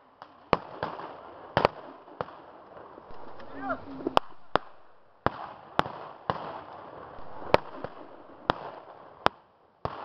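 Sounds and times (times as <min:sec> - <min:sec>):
rifle shots with echo: 0:03.1 - 0:08.8.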